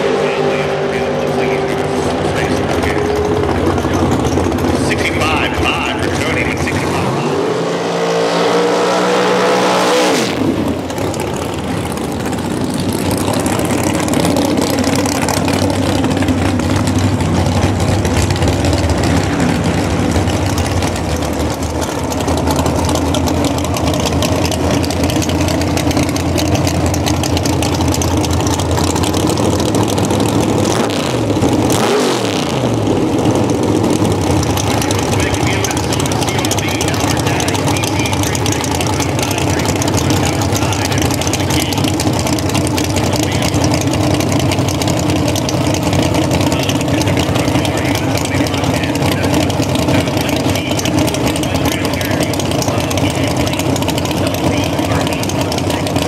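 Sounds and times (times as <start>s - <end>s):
race car engine revving: 0.0s - 56.0s
race car engines rumbling: 0.0s - 56.0s.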